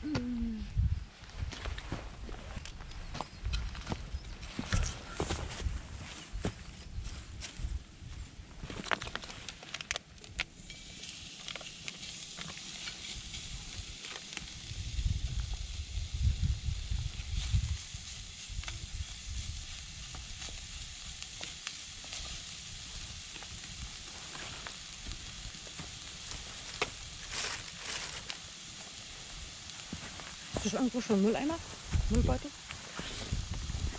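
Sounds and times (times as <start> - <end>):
meat sizzling in a frying pan: 10.5 - 33.9.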